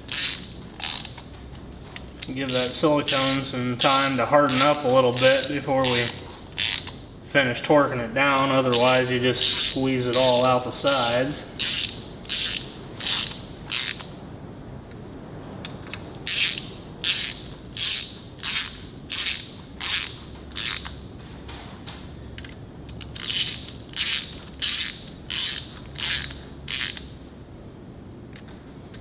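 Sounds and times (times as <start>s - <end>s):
socket ratchet clicking: 0.0s - 1.3s, 2.0s - 7.0s, 8.7s - 14.1s, 15.9s - 21.0s, 22.4s - 27.2s.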